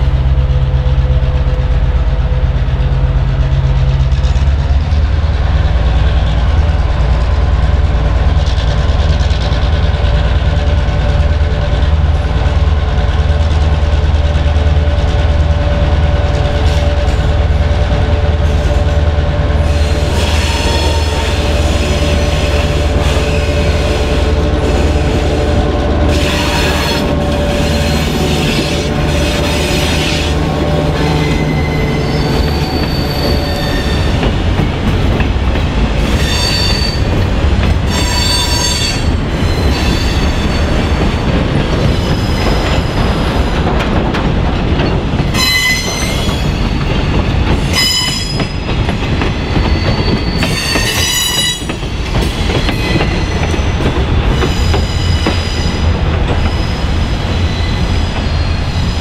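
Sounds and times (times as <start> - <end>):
diesel locomotives running: 0.0 - 59.0
wheels squealing: 26.1 - 34.2, 49.4 - 51.7.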